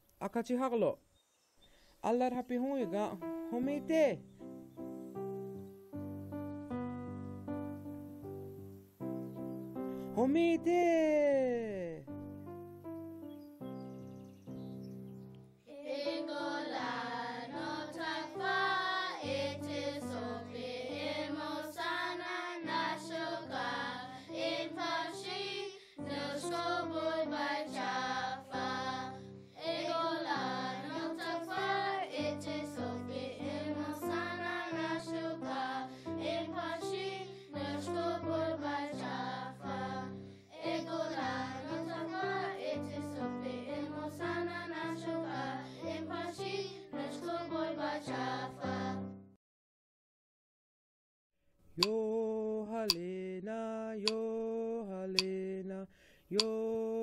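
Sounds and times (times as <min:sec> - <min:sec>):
instrumental backing music: 0:02.6 - 0:11.1, 0:12.0 - 0:15.6
children singing: 0:15.7 - 0:49.0.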